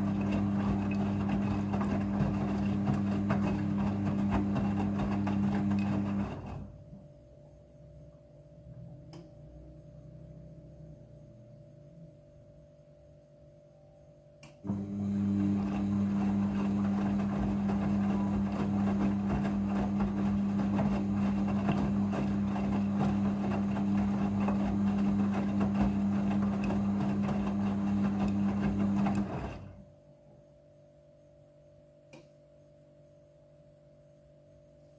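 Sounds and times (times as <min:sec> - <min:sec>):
water and clothes sloshing: 0:00.0 - 0:06.7, 0:15.0 - 0:29.8
washing machine motor hum: 0:00.0 - 0:07.2, 0:14.6 - 0:30.0.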